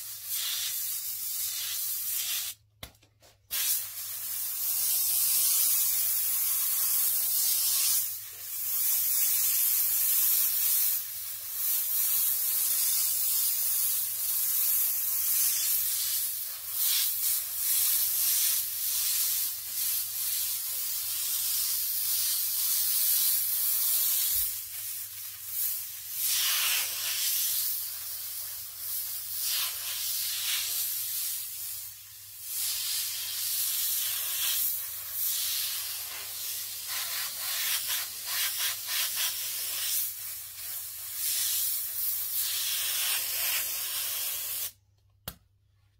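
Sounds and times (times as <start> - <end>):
airbrush spraying hiss: 0.0 - 2.6, 3.5 - 44.8.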